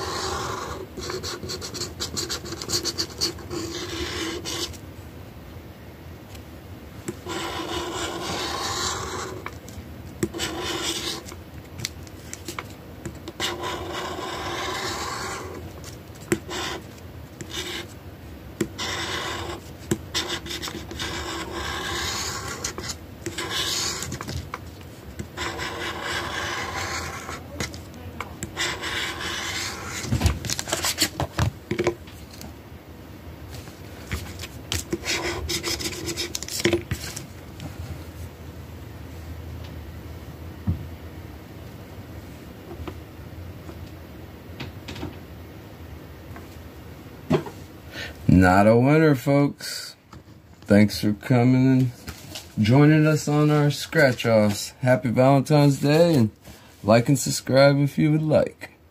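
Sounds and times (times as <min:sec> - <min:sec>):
lottery ticket scratching: 0:00.0 - 0:04.8, 0:07.2 - 0:09.6, 0:10.3 - 0:11.4, 0:13.3 - 0:17.9, 0:18.6 - 0:24.4, 0:25.2 - 0:31.2, 0:34.9 - 0:36.6.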